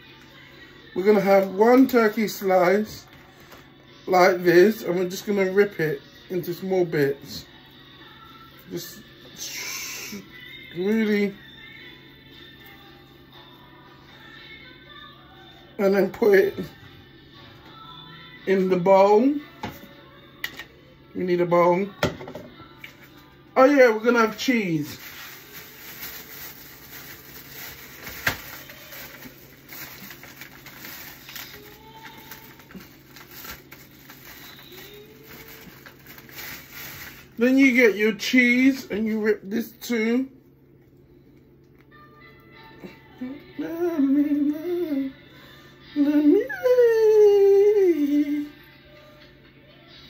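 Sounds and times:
low steady hum: 0.0 - 50.0
person humming a tune: 8.8 - 14.5, 41.9 - 50.0.

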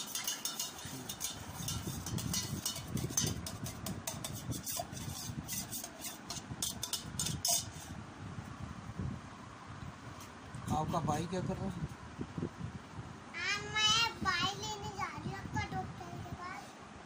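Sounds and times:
spoon clinking in steel cup: 0.0 - 7.8.

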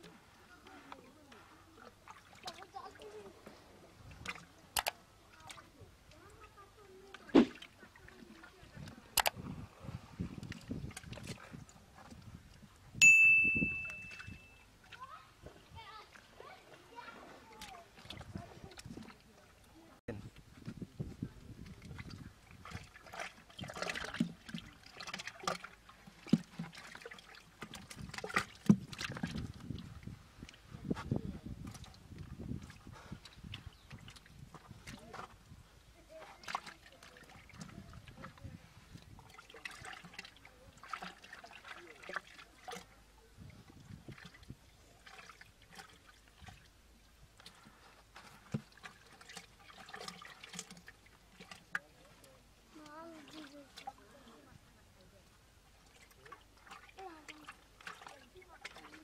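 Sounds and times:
muddy water splashing: 0.0 - 59.0
hands scooping wet mud: 21.4 - 59.0.

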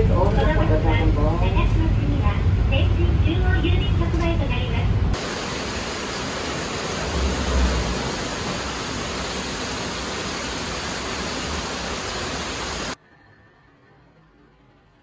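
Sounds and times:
loud rushing hiss: 5.2 - 13.0.

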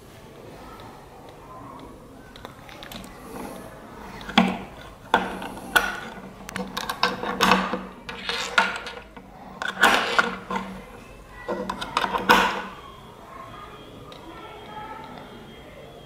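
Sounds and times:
leads rattling on holders and table: 4.2 - 10.9, 11.5 - 12.7.

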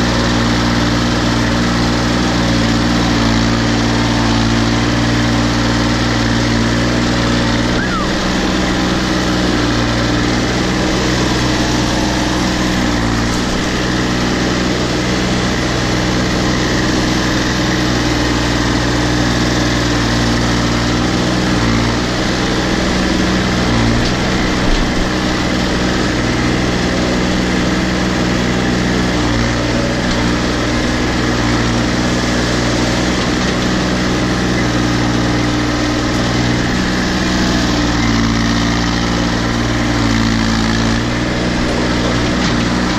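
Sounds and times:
tractor engine running: 0.0 - 42.9.

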